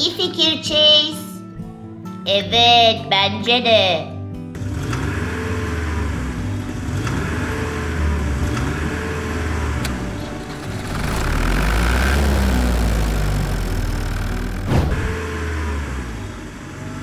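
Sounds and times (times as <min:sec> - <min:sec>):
car engine rumbling: 0:04.6 - 0:17.0.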